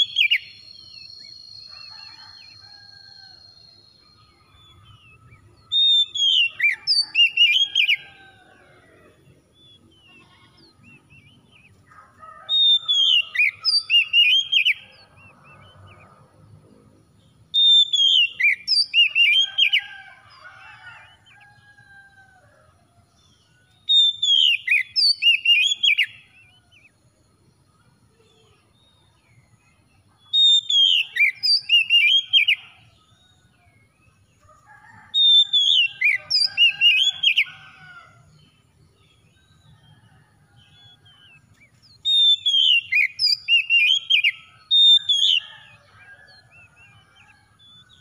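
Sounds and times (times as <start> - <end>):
bird whistling song: 0.0 - 1.6, 5.7 - 8.0, 12.6 - 14.8, 17.5 - 19.8, 23.8 - 26.1, 30.3 - 32.6, 41.9 - 45.5.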